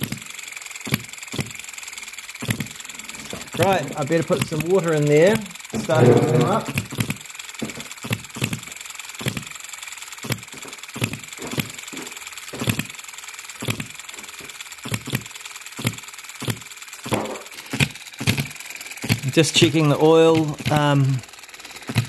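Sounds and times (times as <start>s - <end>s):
governor mechanism clatter: 0.9s - 9.5s, 13.6s - 22.0s
model engine bangs: 3.4s - 6.9s, 17.1s - 17.6s.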